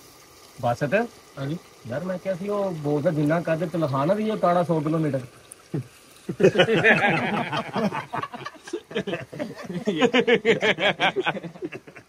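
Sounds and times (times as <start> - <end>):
men laughing heartily: 5.8 - 12.0.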